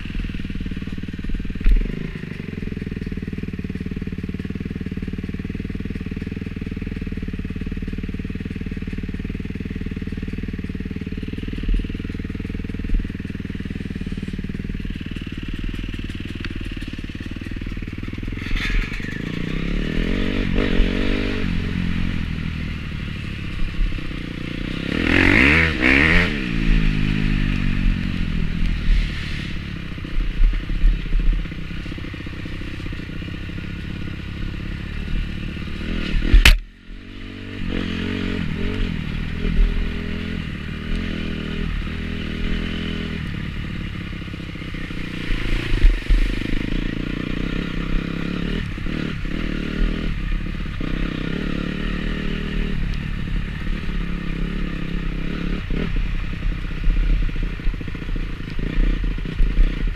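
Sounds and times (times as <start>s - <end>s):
bike rattling over rough ground: 0.0s - 52.6s
dirt bike engine revving: 6.8s - 59.9s
sharp click: 36.0s - 36.7s.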